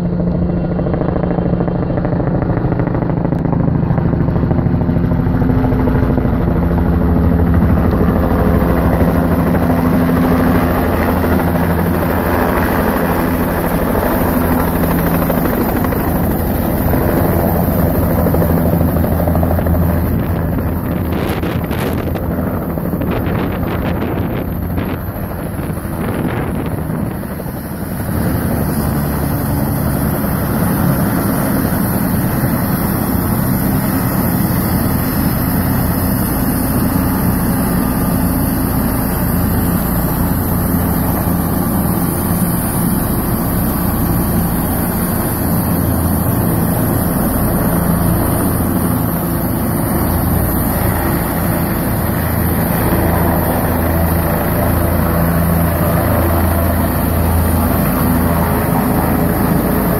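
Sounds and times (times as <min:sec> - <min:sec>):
helicopter rotor and engine drone: 0:00.0 - 0:59.9
high turbine whine: 0:00.0 - 0:59.9
rotor downwash buffeting microphone: 0:00.0 - 0:59.9.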